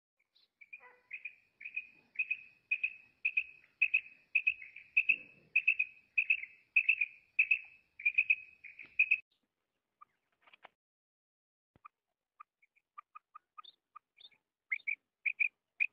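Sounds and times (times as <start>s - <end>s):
quail calling: 0.6s - 9.2s, 14.7s - 15.9s.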